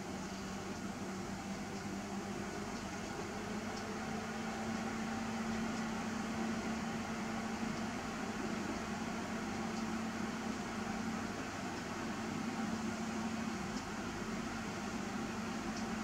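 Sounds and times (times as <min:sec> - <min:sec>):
low mechanical hum: 0:00.0 - 0:16.0
faint ticks: 0:03.7 - 0:03.9, 0:05.6 - 0:06.0, 0:09.6 - 0:10.0, 0:15.7 - 0:16.0.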